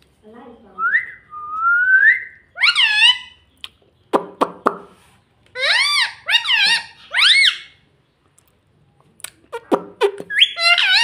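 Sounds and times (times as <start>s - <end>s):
squeaky parakeet calls: 2.5s - 3.4s, 5.6s - 7.8s, 9.5s - 11.0s.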